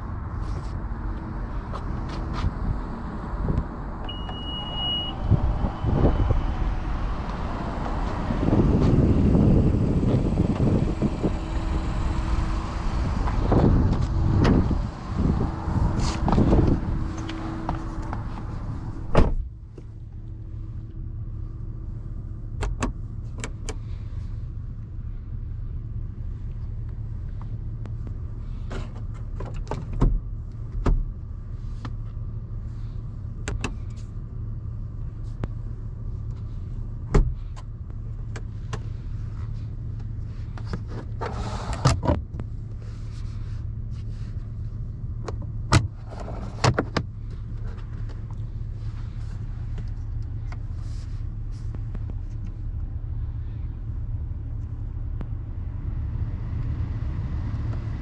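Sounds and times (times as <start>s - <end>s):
low cabin hum: 0.0s - 58.0s
sharp clicks and knocks of controls: 22.5s - 23.9s, 26.8s - 31.2s, 33.4s - 34.1s, 36.3s - 42.6s, 45.2s - 48.5s.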